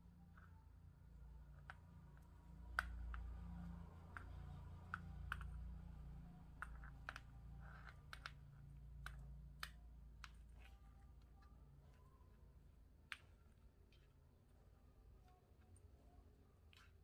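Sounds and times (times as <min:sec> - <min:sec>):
low steady hum: 0:00.0 - 0:17.0
paracord clicks and rubbing: 0:06.5 - 0:11.4.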